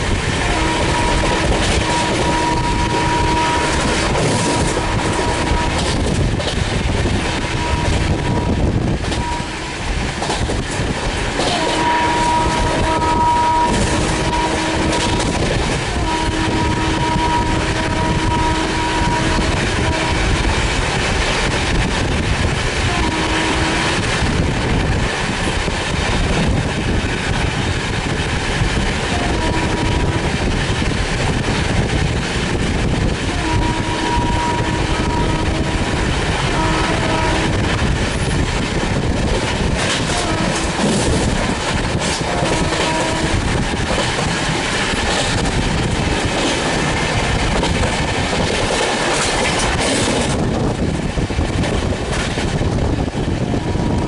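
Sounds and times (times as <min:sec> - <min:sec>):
train wheels rushing on track: 0:00.0 - 0:54.0
train horn honking: 0:00.4 - 0:06.2, 0:07.2 - 0:09.9, 0:11.4 - 0:20.6, 0:22.8 - 0:24.2, 0:29.1 - 0:30.5, 0:33.2 - 0:38.5, 0:40.0 - 0:41.3, 0:42.1 - 0:43.8, 0:53.5 - 0:54.0.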